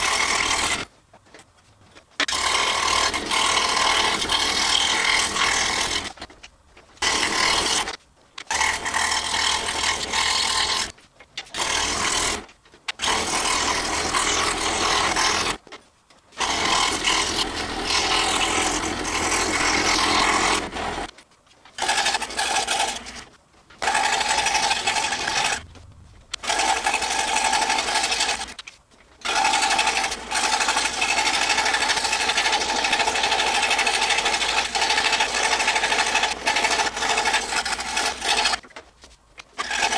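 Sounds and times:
scroll saw buzzing: 0.0s - 0.9s, 2.2s - 6.3s, 7.0s - 15.6s, 16.3s - 21.1s, 21.8s - 38.6s, 39.5s - 39.9s.

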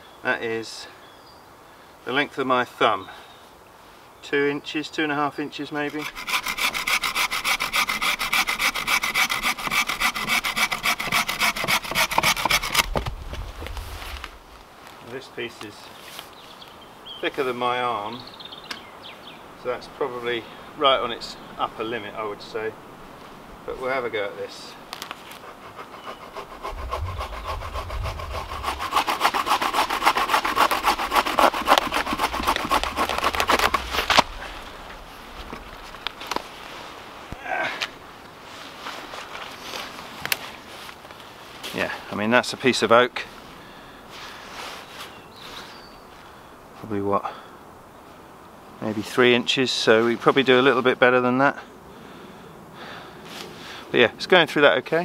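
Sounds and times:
saw rasping through log: 5.9s - 13.0s, 25.3s - 34.6s.

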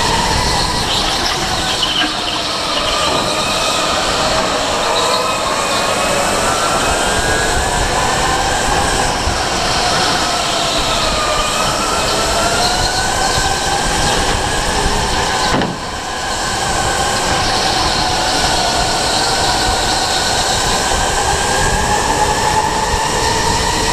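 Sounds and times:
wind noise: 0.0s - 23.9s.

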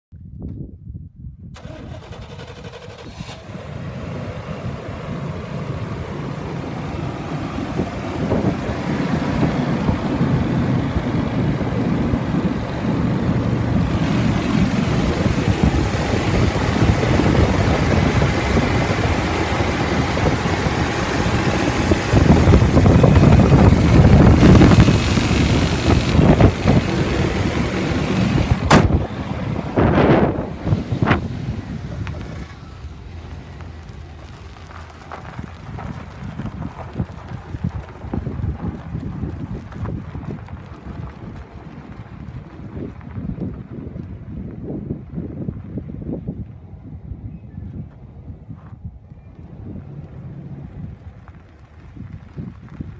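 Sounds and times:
engine idling: 1.6s - 42.9s.

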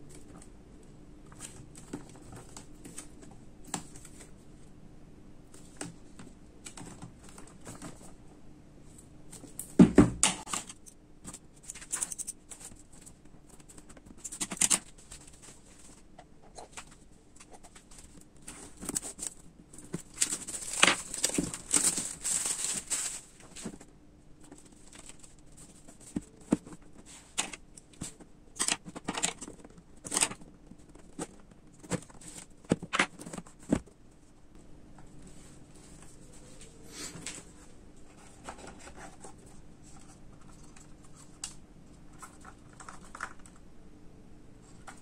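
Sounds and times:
plastic wrapping crinkling and tearing: 17.8s - 23.8s.

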